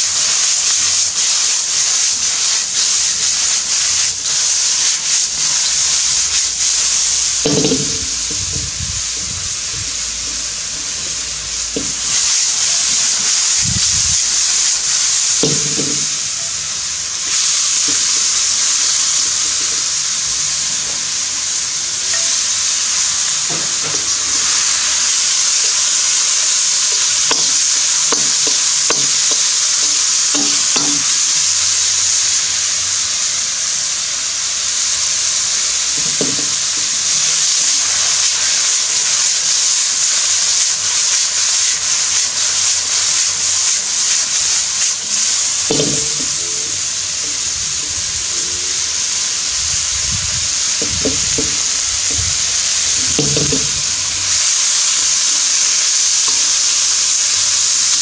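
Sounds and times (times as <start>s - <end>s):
oil sizzling in a wok: 0.0s - 58.0s
metal spatula scraping a wok: 7.4s - 8.5s, 14.9s - 16.5s, 22.0s - 31.9s.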